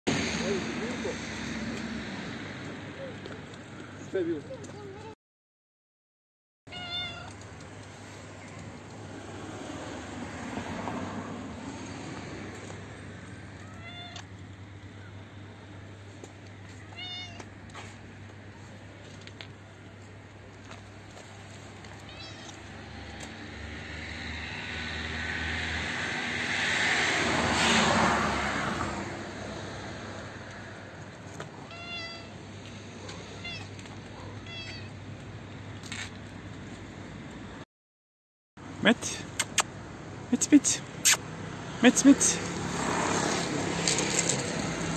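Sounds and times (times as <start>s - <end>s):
vehicle passing by: 0.1s - 4.4s, 8.9s - 12.9s, 22.6s - 30.9s, 40.4s - 44.9s
cat meowing: 6.7s - 7.4s, 13.6s - 14.3s, 16.9s - 17.5s, 22.0s - 22.7s, 31.7s - 32.3s, 33.1s - 34.9s.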